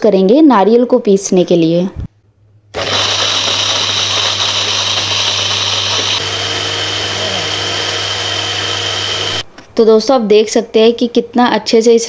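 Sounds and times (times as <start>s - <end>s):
blender running: 2.8s - 9.5s.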